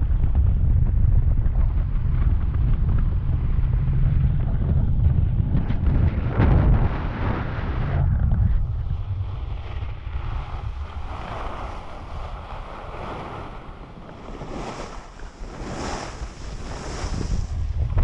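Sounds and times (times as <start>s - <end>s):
wind buffeting microphone: 0.0s - 18.0s
skis hissing on snow: 14.4s - 17.6s.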